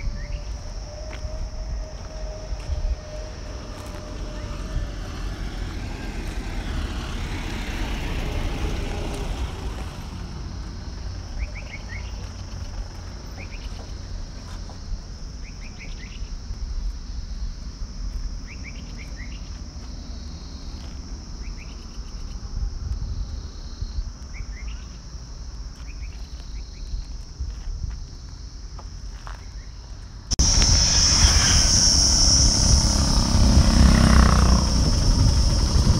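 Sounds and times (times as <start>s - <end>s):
jeep passing on road: 0.0s - 15.4s, 30.1s - 35.9s
high insect drone: 0.0s - 35.9s
low rumble: 30.3s - 35.9s.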